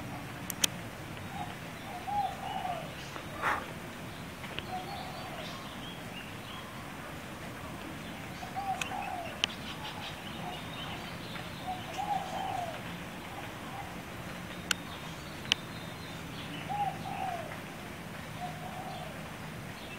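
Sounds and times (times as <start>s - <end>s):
pheasant cooing calls: 1.3s - 4.0s, 4.6s - 6.0s, 6.6s - 14.2s, 16.4s - 17.6s, 18.4s - 19.4s.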